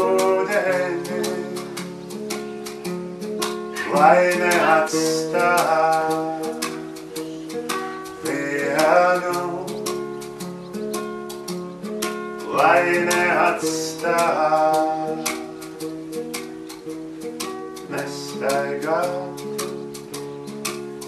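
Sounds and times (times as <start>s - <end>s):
man singing: 0.0s - 2.0s, 3.8s - 7.0s, 8.2s - 10.0s, 12.4s - 15.7s, 17.9s - 19.8s
acoustic guitar picked: 0.0s - 21.0s
light ticking beat: 0.0s - 21.0s.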